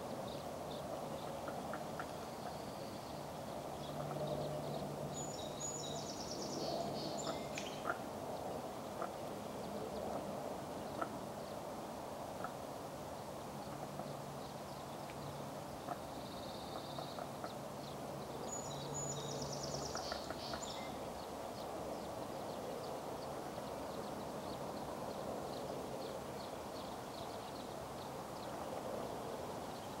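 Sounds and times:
trilling birdsong: 0.0 - 8.4, 13.6 - 29.0.

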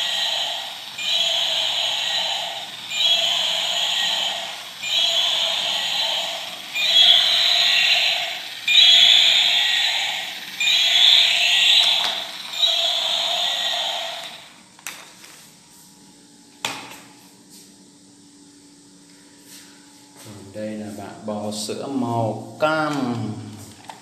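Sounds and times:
toy dinosaur electronic roar: 0.0 - 14.5.

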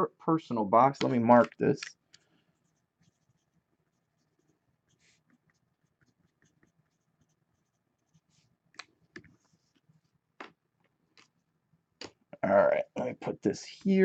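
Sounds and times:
pen scratching on paper: 2.6 - 8.5.

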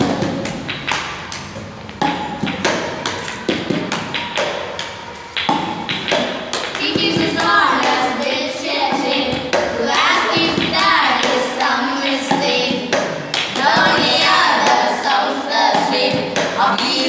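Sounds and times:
children singing in unison: 0.0 - 0.6, 6.7 - 17.0
hands clapping: 0.0 - 8.3, 8.9 - 17.0.

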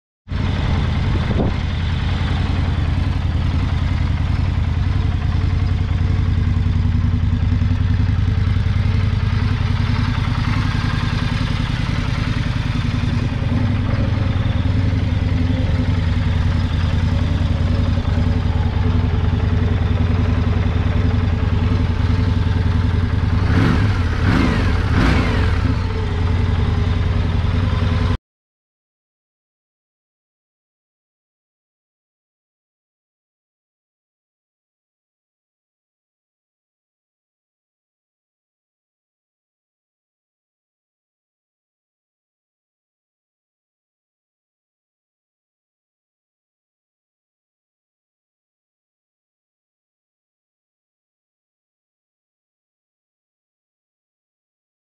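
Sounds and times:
motorcycle engine idling: 0.3 - 28.2.

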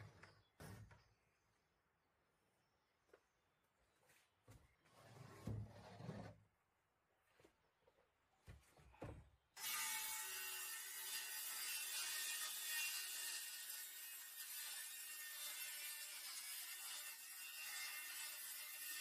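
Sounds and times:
circular saw cutting board: 9.6 - 19.0.

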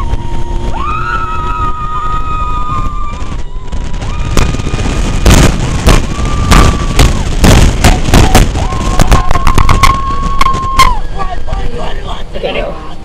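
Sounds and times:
wind buffeting microphone: 0.0 - 12.7.

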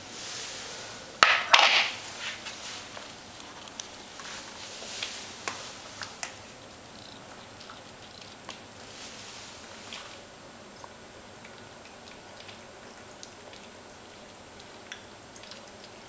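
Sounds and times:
kittens eating: 0.7 - 16.0
dish clattering on wooden floor: 1.2 - 2.0.

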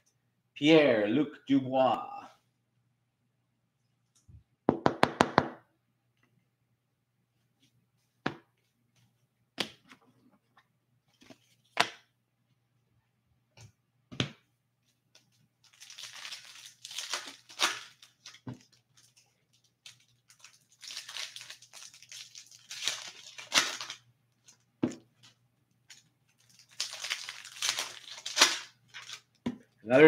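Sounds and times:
foil wrapper tearing and crinkling: 15.7 - 24.6, 25.2 - 29.4.

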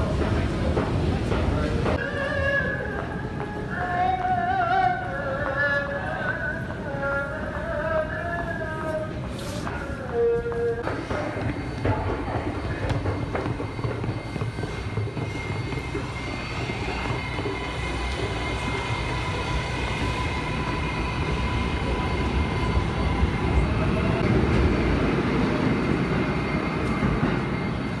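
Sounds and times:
subway train electric whine: 0.0 - 28.0.

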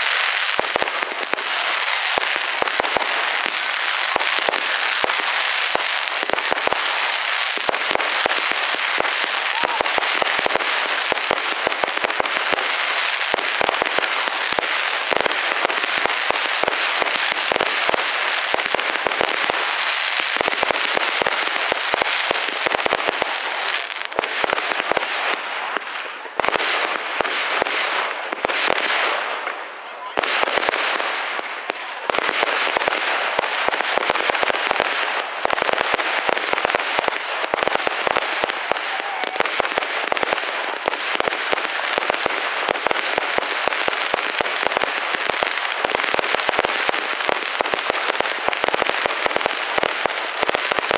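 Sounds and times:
fireworks bangs and crackling: 0.0 - 50.9.

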